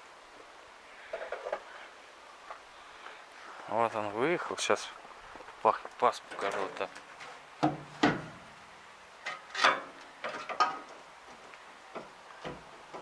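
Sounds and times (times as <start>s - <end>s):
metal parts clunking and scraping: 1.1s - 1.7s, 9.2s - 11.0s.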